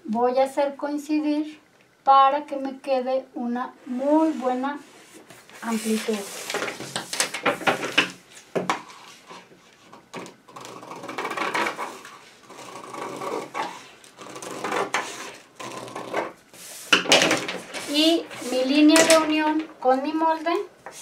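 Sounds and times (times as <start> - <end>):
paper crackling and rustling: 5.2 - 8.5, 13.6 - 19.8.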